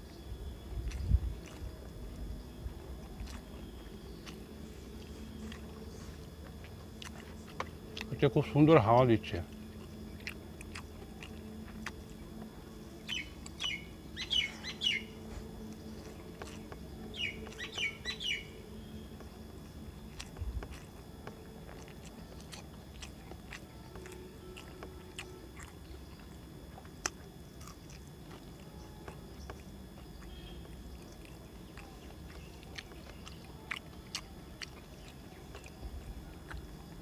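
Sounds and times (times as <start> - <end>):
soft chewing: 0.0 - 37.0
high falling bird chirps: 13.1 - 15.2, 17.1 - 18.6.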